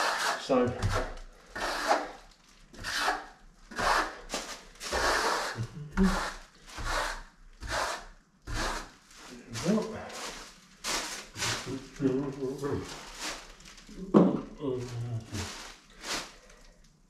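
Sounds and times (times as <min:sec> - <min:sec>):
trowel scraping wet plaster: 0:00.0 - 0:02.2, 0:02.8 - 0:10.4.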